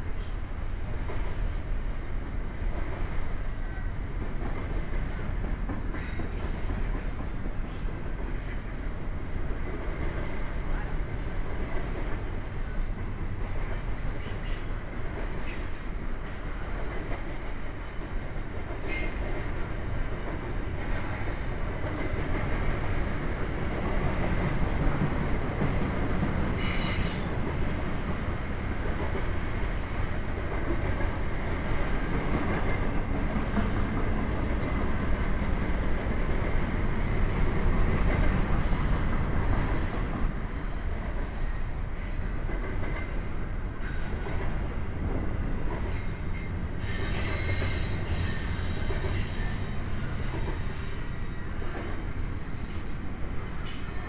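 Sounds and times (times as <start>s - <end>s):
train wheel squeals: 0.0s - 1.6s, 5.9s - 8.6s, 10.8s - 11.8s, 13.4s - 16.4s, 18.8s - 19.4s, 20.8s - 24.8s, 25.6s - 27.8s, 33.4s - 34.7s, 38.5s - 44.5s, 45.5s - 54.0s
train wheels rumbling on rail: 0.0s - 54.0s.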